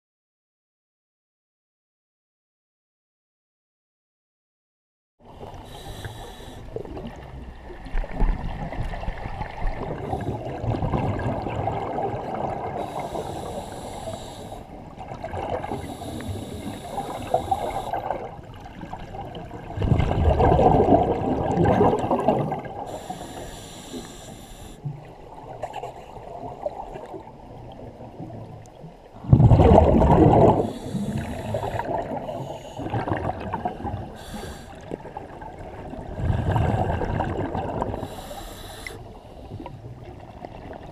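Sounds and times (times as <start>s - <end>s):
exhaust bubbles gurgling: 6.7s - 13.7s, 14.9s - 22.9s, 29.2s - 38.4s.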